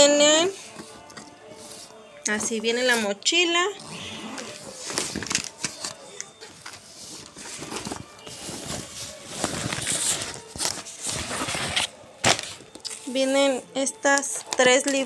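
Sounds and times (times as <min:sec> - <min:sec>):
backpack rustling: 0:03.8 - 0:12.5.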